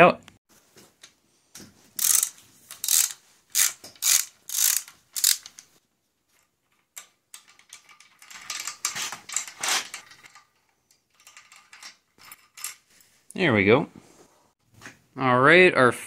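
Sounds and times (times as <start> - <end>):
gritty threaded parts turning: 1.5 - 13.2
metal ratchet-like clicks: 2.0 - 5.8, 6.7 - 12.8.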